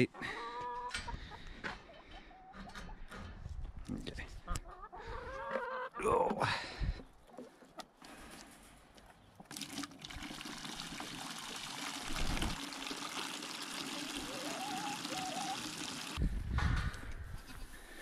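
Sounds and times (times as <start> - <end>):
hose water pouring into bucket: 9.5 - 16.2.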